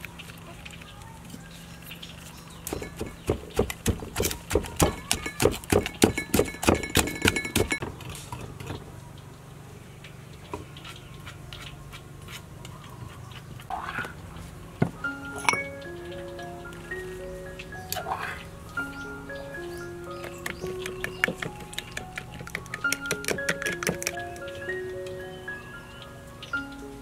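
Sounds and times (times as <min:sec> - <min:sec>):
pestle pounding in a mortar: 0:02.6 - 0:07.8, 0:20.2 - 0:24.2
light mallet music: 0:15.0 - 0:27.0.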